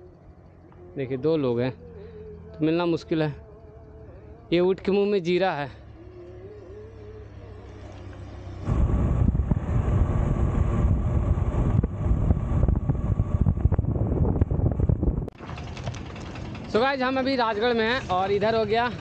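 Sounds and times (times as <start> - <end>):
motorcycle road and engine noise: 0.0 - 19.0
wind rushing over microphone: 8.6 - 15.4.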